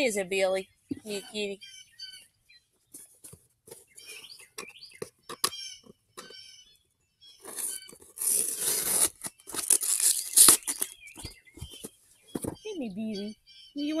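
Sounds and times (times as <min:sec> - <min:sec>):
packaging ripping: 0:07.4 - 0:11.0
packaging crinkling: 0:07.4 - 0:12.5
packaging handling clicks: 0:08.6 - 0:11.0.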